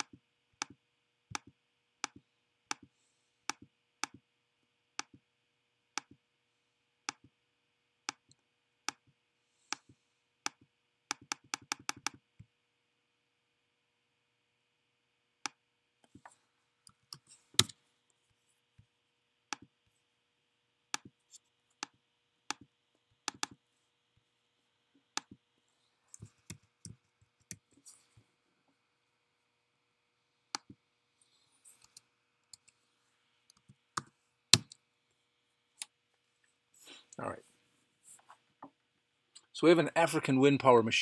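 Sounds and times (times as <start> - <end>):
mouse and keyboard clicks: 9.7 - 12.2, 15.5 - 17.8, 20.9 - 23.6.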